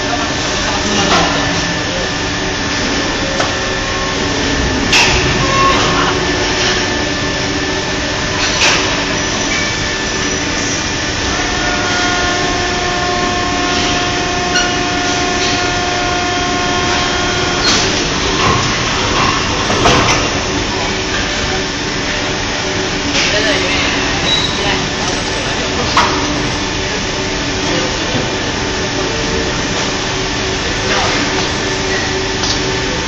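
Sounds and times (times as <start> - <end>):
factory machines running: 0.0 - 33.0.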